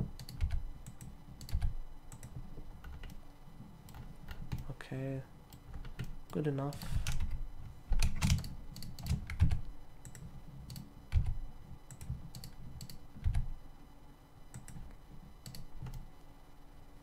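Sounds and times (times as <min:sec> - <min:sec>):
keyboard and mouse clicking: 0:00.1 - 0:03.2, 0:05.5 - 0:11.3, 0:11.9 - 0:13.5, 0:14.5 - 0:16.1.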